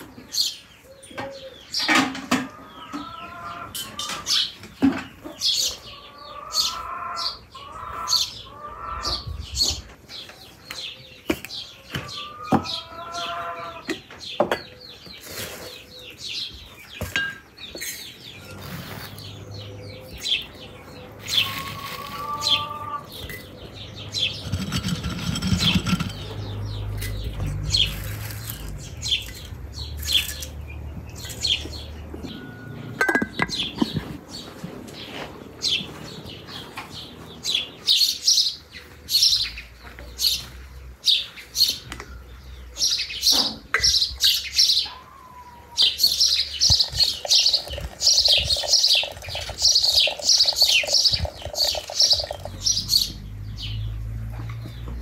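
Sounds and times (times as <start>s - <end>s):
songbirds chirping: 0.0s - 55.0s.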